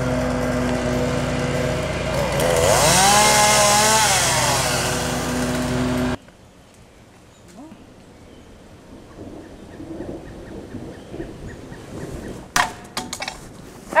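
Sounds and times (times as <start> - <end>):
chainsaw revving and cutting wood: 0.0 - 6.2.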